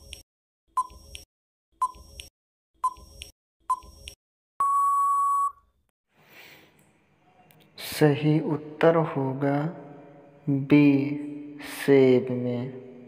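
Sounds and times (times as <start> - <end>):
long steady beep: 4.6 - 5.6.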